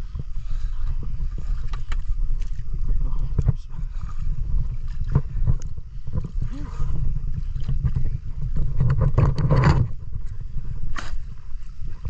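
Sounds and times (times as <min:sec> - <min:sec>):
water sloshing on microphone: 0:00.0 - 0:12.0
water splashing: 0:00.5 - 0:12.0.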